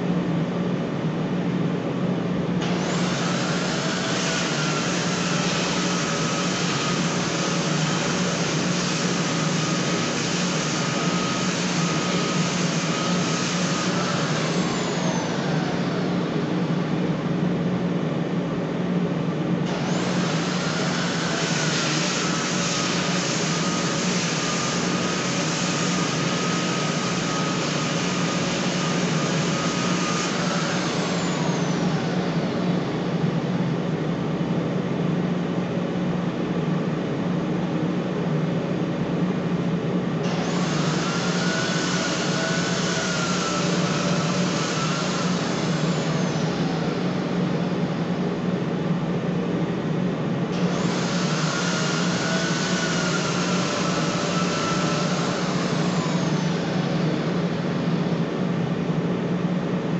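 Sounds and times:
hum of shop machinery: 0:00.0 - 0:59.9
electric sander sanding wood: 0:02.6 - 0:16.3, 0:19.7 - 0:32.8, 0:40.3 - 0:47.2, 0:50.6 - 0:57.8.

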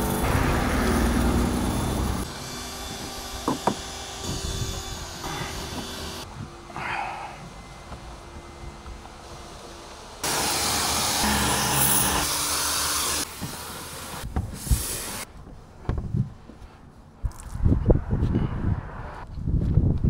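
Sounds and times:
spray gun hissing: 0:10.2 - 0:15.3.

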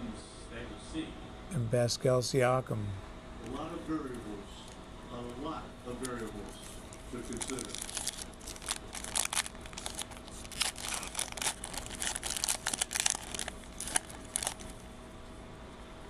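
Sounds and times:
foil wrapper tearing and crinkling: 0:06.9 - 0:14.8.

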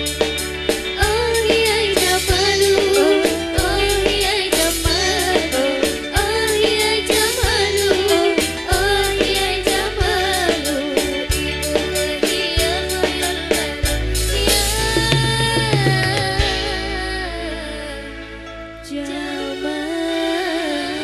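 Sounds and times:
keyboard and bass: 0:00.0 - 0:21.0
woman singing into a microphone: 0:01.0 - 0:21.0
hand drums beating: 0:14.6 - 0:16.7.

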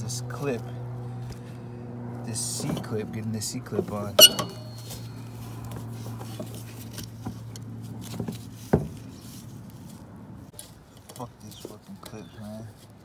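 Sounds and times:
metallic clicks and scrapes: 0:04.2 - 0:08.3.

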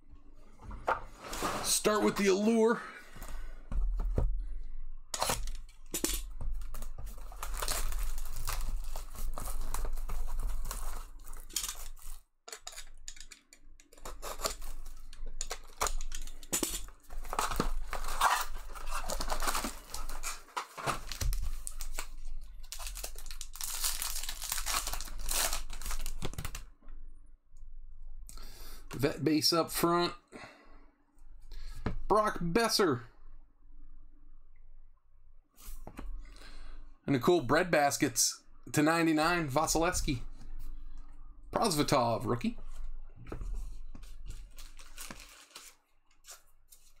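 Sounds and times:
cardboard and cards rustling: 0:05.2 - 0:12.8, 0:14.1 - 0:26.6, 0:42.7 - 0:47.0
plastic wrapping crinkling: 0:06.5 - 0:12.2, 0:14.6 - 0:26.6, 0:44.0 - 0:47.0.

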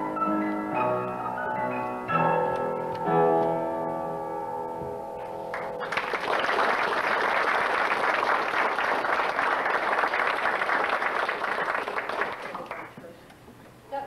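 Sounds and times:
piano music: 0:00.0 - 0:06.6
audience applauding: 0:05.5 - 0:13.0.

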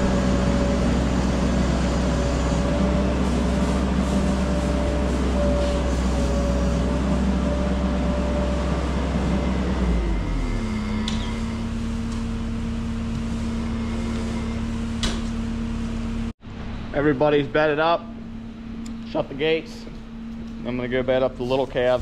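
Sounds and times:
loader engine idling: 0:00.0 - 0:16.3.

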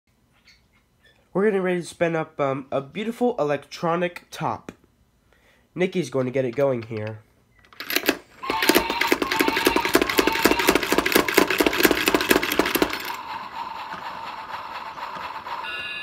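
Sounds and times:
plunger ratcheting clatter: 0:07.8 - 0:13.2
spinning top whirring: 0:07.8 - 0:16.0.

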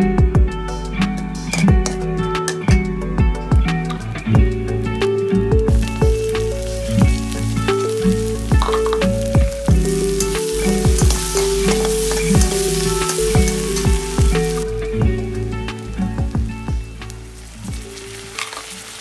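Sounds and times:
background music with steady beat: 0:00.0 - 0:18.2
onions sizzling in hot oil: 0:05.7 - 0:19.0.

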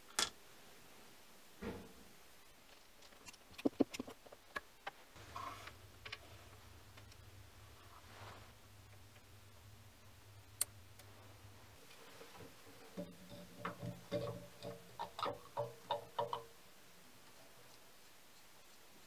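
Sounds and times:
metallic clunks and knocks: 0:01.6 - 0:02.0, 0:12.4 - 0:16.5.

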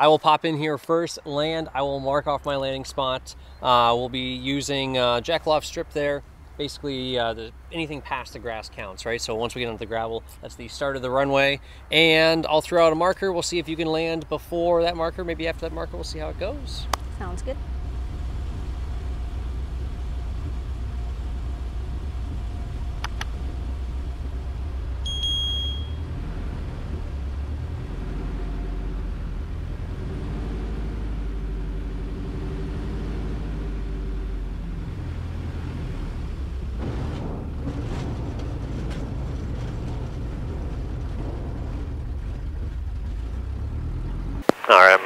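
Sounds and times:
propeller plane engine: 0:15.5 - 0:25.1
short high beep: 0:25.0 - 0:26.0.

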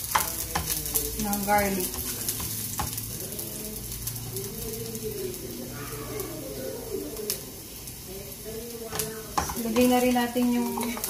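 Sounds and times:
garlic sizzling in hot oil: 0:00.0 - 0:11.0
low coo-like sound: 0:05.6 - 0:07.5.

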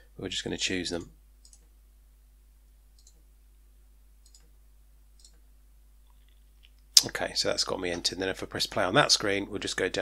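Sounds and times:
faint computer mouse clicks: 0:01.4 - 0:01.7, 0:03.0 - 0:03.2, 0:04.2 - 0:04.5.

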